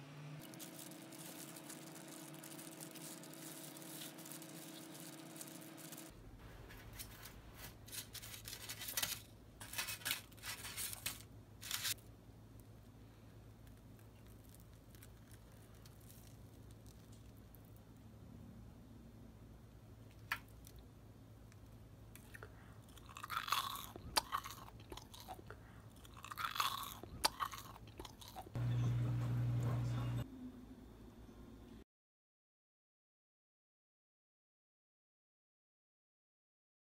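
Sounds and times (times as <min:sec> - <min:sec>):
crisp chewing crunch: 0:00.4 - 0:06.1, 0:13.4 - 0:17.7, 0:22.2 - 0:28.6
baking parchment crinkling: 0:00.4 - 0:12.8, 0:13.4 - 0:17.8
crumb crust crackling: 0:00.4 - 0:18.0, 0:20.0 - 0:30.2
steady low hum: 0:20.8 - 0:31.8.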